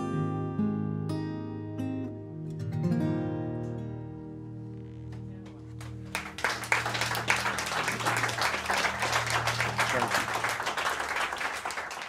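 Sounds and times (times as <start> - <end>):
acoustic guitar chord ringing: 0.0 - 10.5
audience applauding: 5.8 - 12.0.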